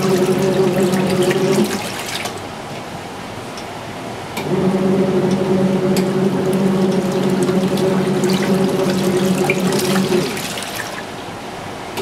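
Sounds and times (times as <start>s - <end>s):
water sloshing and splashing: 0.0s - 2.9s, 5.4s - 11.5s
washing machine motor humming: 0.0s - 12.0s.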